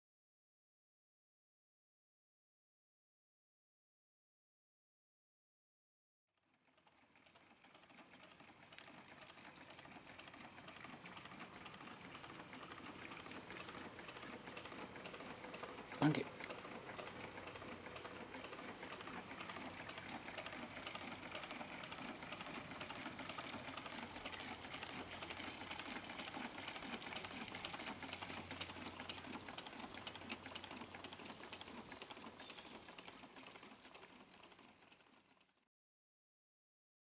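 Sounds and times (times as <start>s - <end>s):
small engine clicking: 6.4s - 35.7s.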